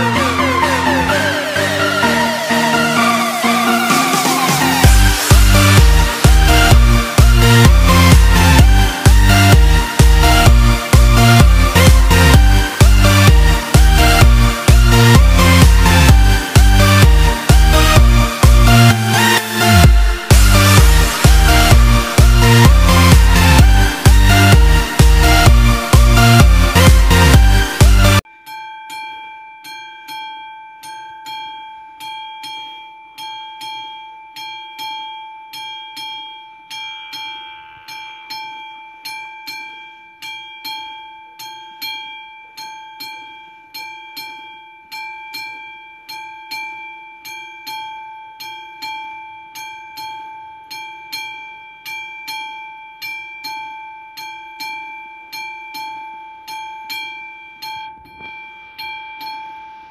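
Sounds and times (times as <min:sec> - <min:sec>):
mechanical warning bell ringing: 0:28.3 - 0:59.9.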